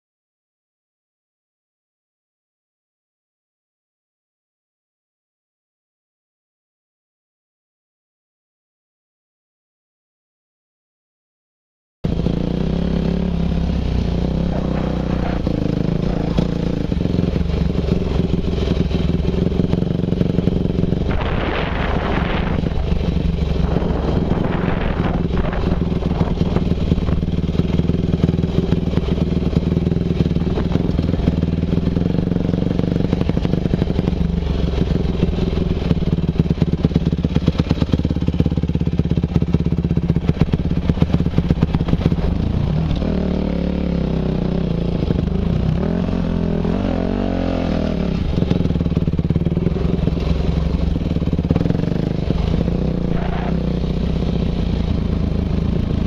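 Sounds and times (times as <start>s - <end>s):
dirt bike engine running: 12.1s - 56.0s.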